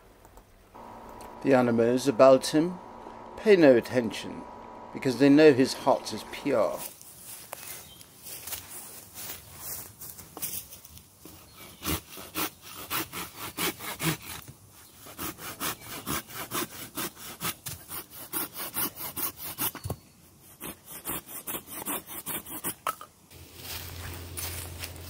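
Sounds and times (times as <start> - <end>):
saw cutting through a branch: 0.8 - 6.9, 11.6 - 19.8.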